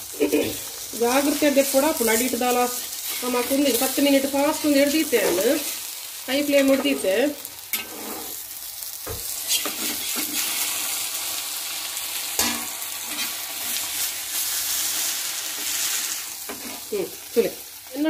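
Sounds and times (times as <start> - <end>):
fish parcel sizzling: 0.0 - 18.0
metal spatula scraping pan: 7.7 - 8.4, 9.4 - 10.6, 12.4 - 13.8.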